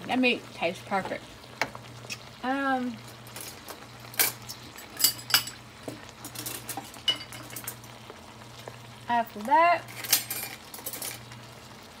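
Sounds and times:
metal utensil clinking on pan: 4.2 - 5.6, 6.3 - 7.8, 9.9 - 11.2.

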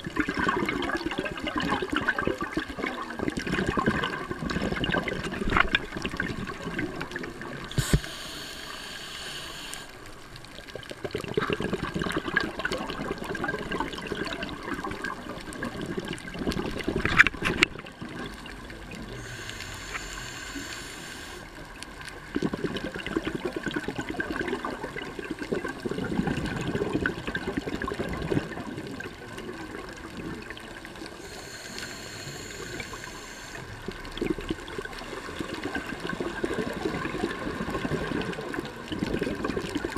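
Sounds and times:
underwater bubbling: 0.0 - 39.9
regulator inhale hiss: 7.7 - 10.1, 19.1 - 21.6, 31.1 - 33.9.

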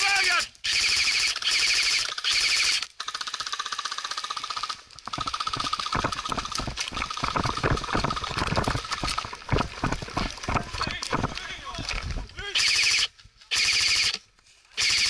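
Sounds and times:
airsoft rifle firing full-auto: 0.6 - 5.9, 12.6 - 14.2, 14.8 - 15.0
fainter rapid gunfire: 0.6 - 6.6, 12.6 - 14.1, 14.8 - 15.0
gear rattling: 3.2 - 12.4.

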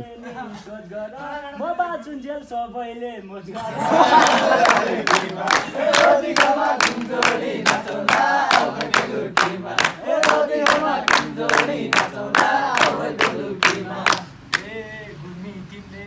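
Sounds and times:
young men singing together: 3.4 - 16.0
hands clapping in time: 4.1 - 14.7.

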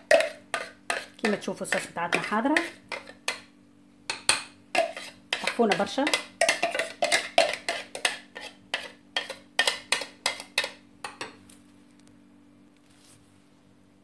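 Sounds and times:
spoon clinking on plastic bowl: 0.0 - 3.4, 4.1 - 8.2.

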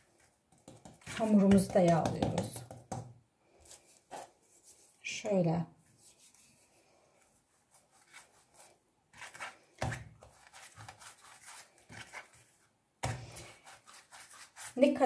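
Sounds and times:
rolling pin rubbing dough: 7.7 - 15.0.

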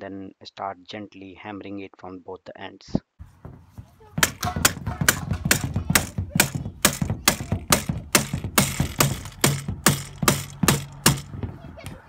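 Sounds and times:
rubber mallet striking metal bar: 4.2 - 11.4.

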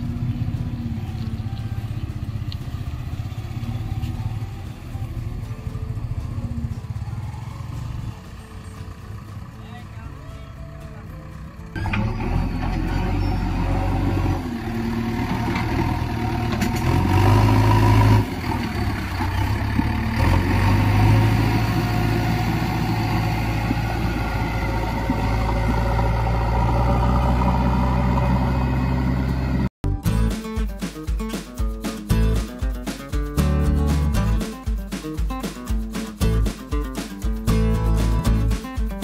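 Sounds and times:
diesel engine revving: 10.7 - 29.7.

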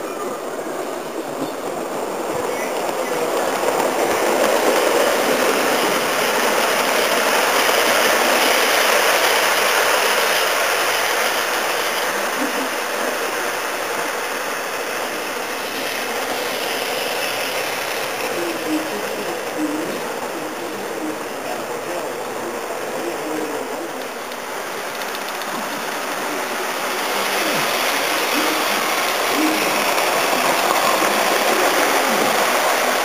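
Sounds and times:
model trains running: 0.0 - 33.0.

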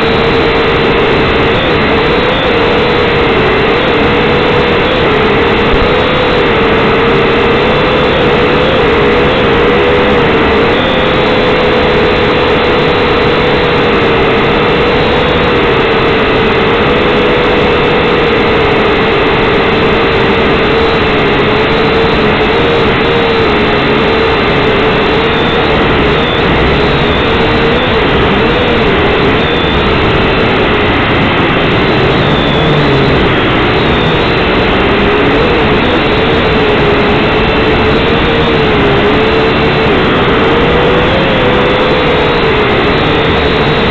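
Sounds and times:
drone motors and propellers whining: 0.0 - 43.9.

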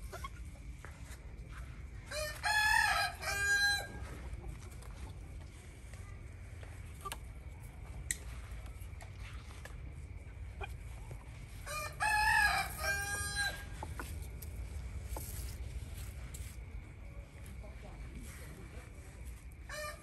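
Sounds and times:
rooster crowing: 2.1 - 4.1, 11.6 - 13.8, 19.7 - 20.0.

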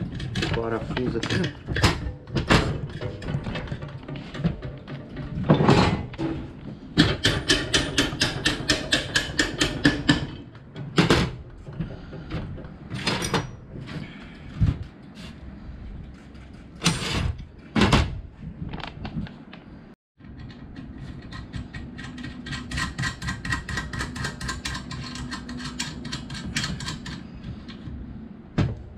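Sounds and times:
metal knocks and clanks: 0.0 - 13.9.

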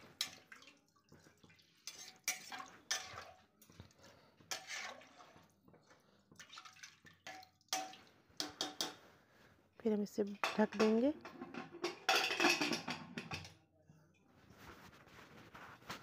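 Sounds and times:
liquid sloshing: 0.0 - 8.2
ladle scraping and clinking on pot: 1.8 - 3.4, 4.4 - 5.5, 7.3 - 9.0, 10.4 - 13.6.

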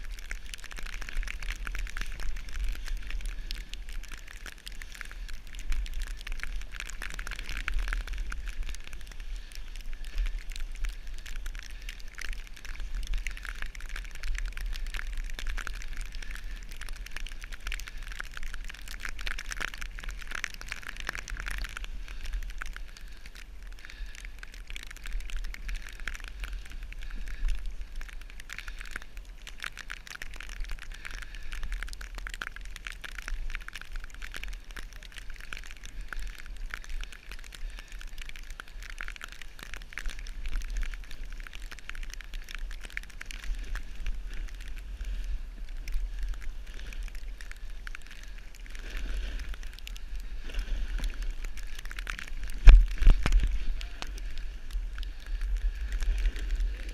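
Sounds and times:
wind rumble on microphone: 39.6 - 56.9
snowboard sliding over snow: 48.7 - 49.6, 50.3 - 51.6, 52.2 - 56.9.

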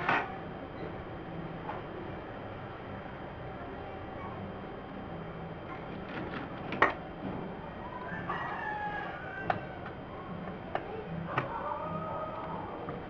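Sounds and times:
rooster crowing: 7.9 - 9.9, 11.3 - 12.8.

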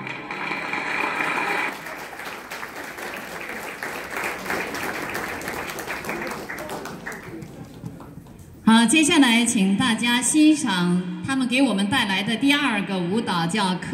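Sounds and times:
audience applauding: 0.3 - 8.6.

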